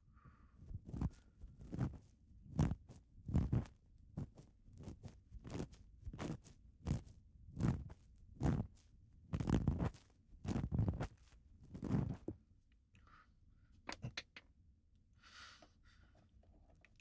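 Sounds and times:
ear pick scraping: 0:00.8 - 0:12.3.

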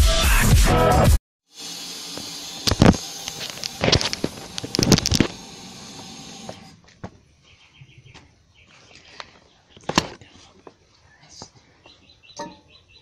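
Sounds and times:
faint bird chirps: 0:07.3 - 0:09.9, 0:11.0 - 0:13.0.

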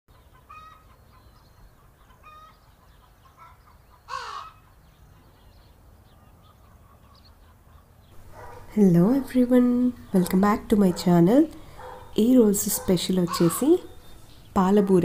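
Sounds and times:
crow cawing: 0:04.1 - 0:04.6, 0:13.3 - 0:14.1.

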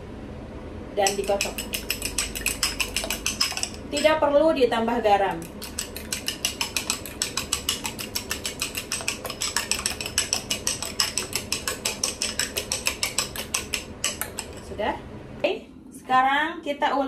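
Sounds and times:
fork beating eggs in a bowl: 0:01.0 - 0:04.2, 0:05.0 - 0:14.8.

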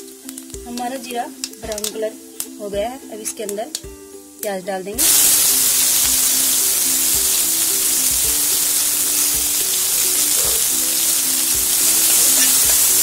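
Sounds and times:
background music with sustained notes: 0:00.0 - 0:13.0
onion frying in hot oil: 0:05.0 - 0:13.0.

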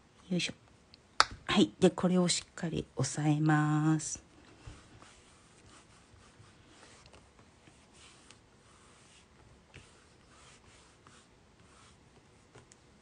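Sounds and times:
hands rubbing on plate: 0:04.6 - 0:12.6.

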